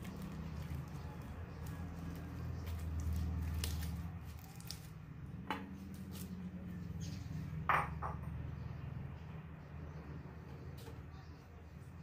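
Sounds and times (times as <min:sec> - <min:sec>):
slime squishing: 0:00.0 - 0:05.1.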